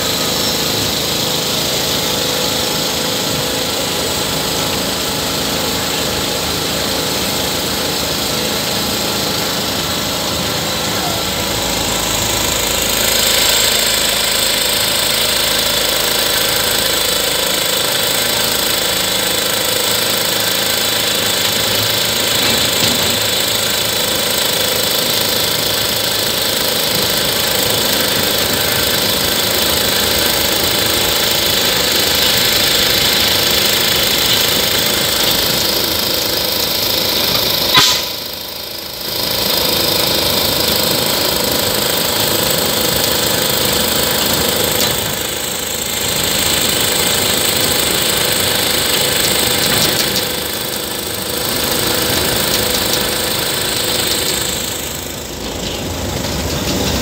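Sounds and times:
locomotive engine running: 0.0s - 57.0s
sharp click: 37.6s - 38.3s.

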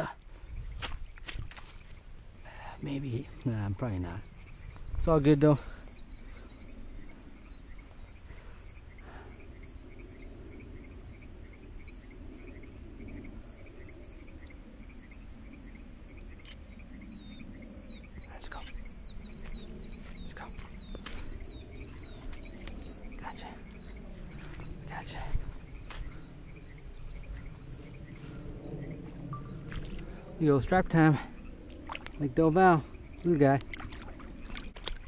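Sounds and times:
insects trilling: 0.0s - 35.0s
short repeated insect chirps: 4.2s - 30.4s.

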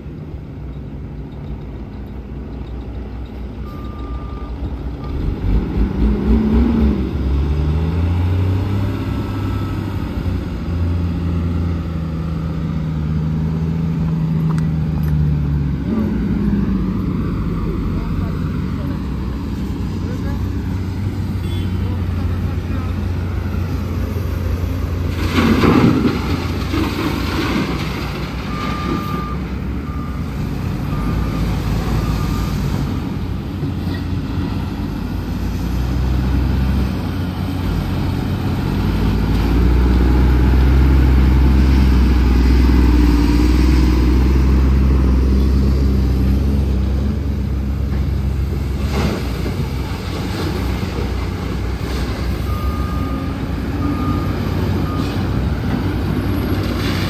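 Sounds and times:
reversing alarm beeps: 2.5s - 5.4s, 28.4s - 33.0s, 52.4s - 55.5s.

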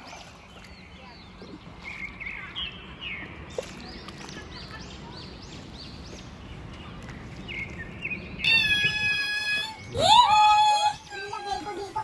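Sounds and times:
bird calling high notes: 8.4s - 11.4s.

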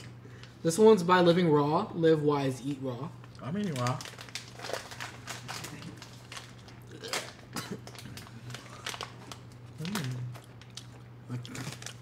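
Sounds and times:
plastic wrapper crinkling: 3.2s - 12.0s
chewing and mouth sounds: 4.4s - 12.0s.

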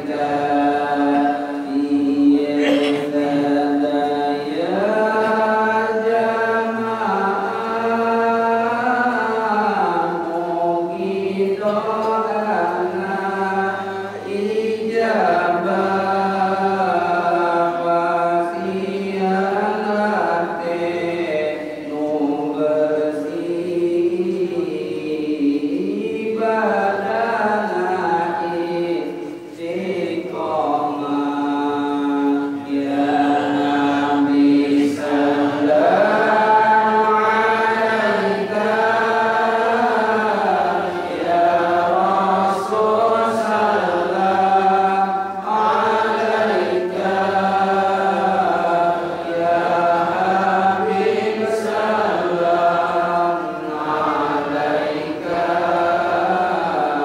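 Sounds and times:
men chanting: 0.0s - 57.0s.

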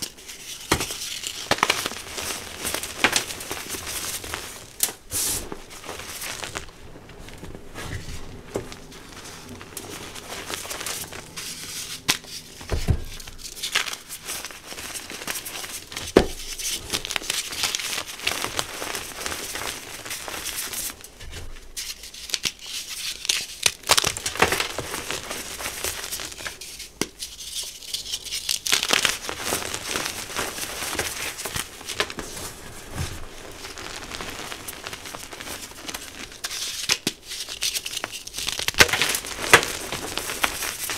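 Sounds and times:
chalk chunks cracking: 0.0s - 5.1s, 34.0s - 40.9s
chalk crunching and crumbling: 0.0s - 40.9s.

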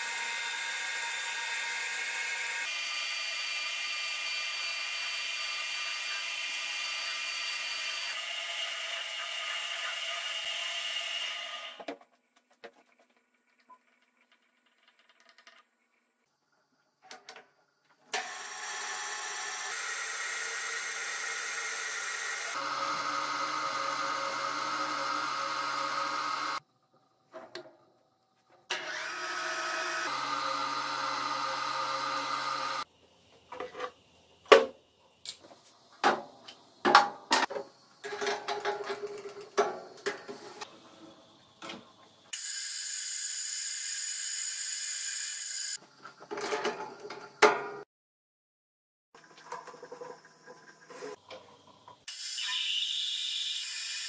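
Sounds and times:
metal lathe running: 18.2s - 26.6s, 28.7s - 32.8s.

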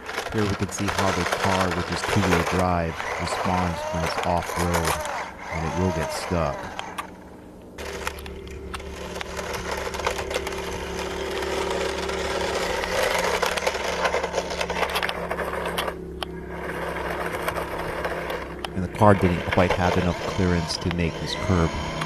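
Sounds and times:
toy car motor whirring: 0.0s - 22.0s.

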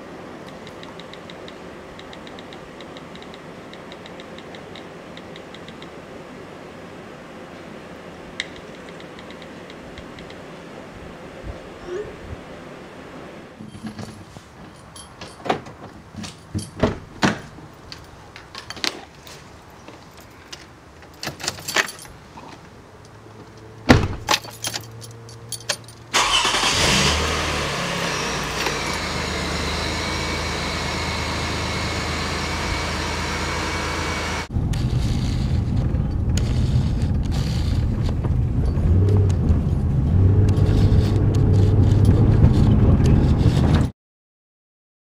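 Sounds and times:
car engine starting and running: 26.1s - 43.6s.

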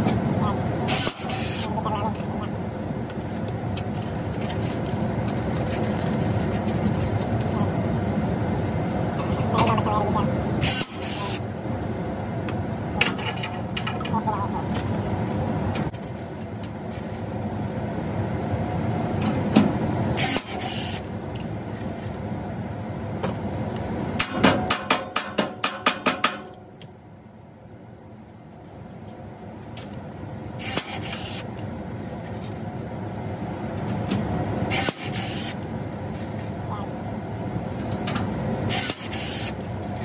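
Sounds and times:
steady background hum: 0.0s - 40.0s
rivet gun whirring and snapping: 0.9s - 1.7s, 10.6s - 11.4s, 20.2s - 22.2s, 30.6s - 32.6s, 33.8s - 36.5s, 37.8s - 40.0s
sharp knocks: 24.2s - 26.5s.

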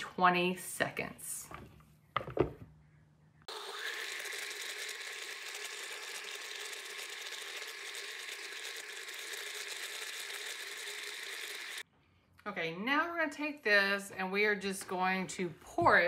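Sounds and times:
blender running: 3.5s - 11.8s.

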